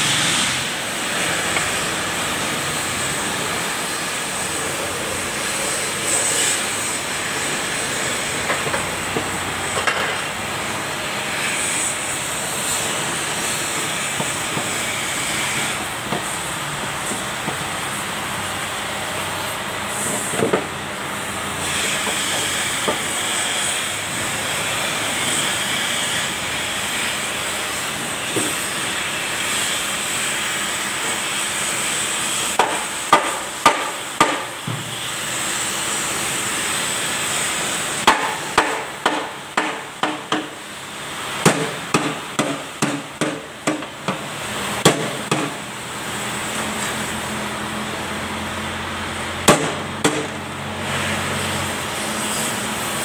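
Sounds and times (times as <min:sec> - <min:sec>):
hammer striking steel: 0:32.6 - 0:34.9, 0:38.0 - 0:40.6, 0:41.4 - 0:44.2, 0:44.8 - 0:45.6, 0:49.4 - 0:50.4.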